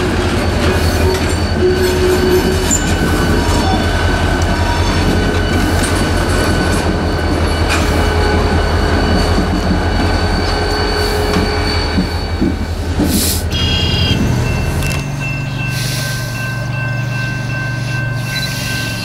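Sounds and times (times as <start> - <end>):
diesel locomotive rumbling: 0.0 - 19.0
wheels squealing on rail: 0.0 - 19.0.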